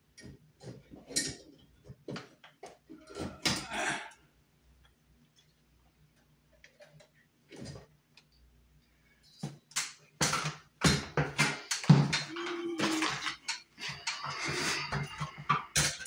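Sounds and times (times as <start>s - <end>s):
clattering and rustling handling: 10.3s - 16.0s.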